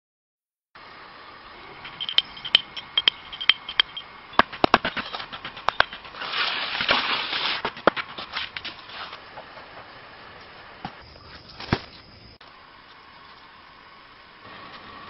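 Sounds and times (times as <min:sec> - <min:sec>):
rustling leaves and branches: 0:00.8 - 0:15.0
wood and stone knocking: 0:01.9 - 0:06.2.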